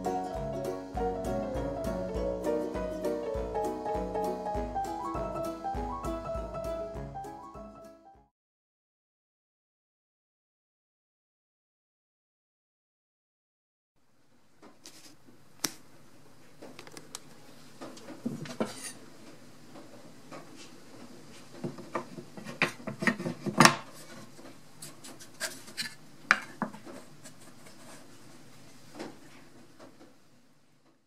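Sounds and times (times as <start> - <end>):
faint steady hum: 14.0 - 31.0.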